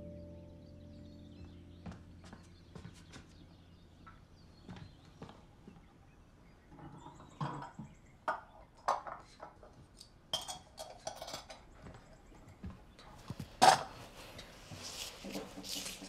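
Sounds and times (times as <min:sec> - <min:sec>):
crockery and cutlery clinking: 0:06.7 - 0:12.0.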